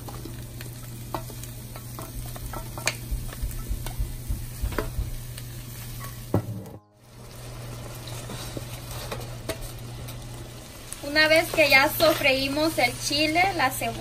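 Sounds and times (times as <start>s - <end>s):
vegetables sizzling in frying pan: 0.0s - 14.0s
wooden spoon knocking and scraping pan: 1.1s - 5.3s.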